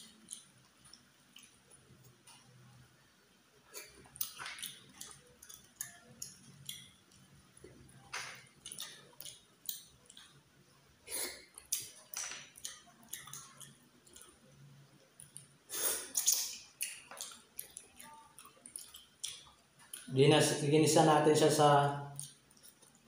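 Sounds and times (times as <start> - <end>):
wet sucking and chewing: 11.1 - 14.6, 15.2 - 20.1.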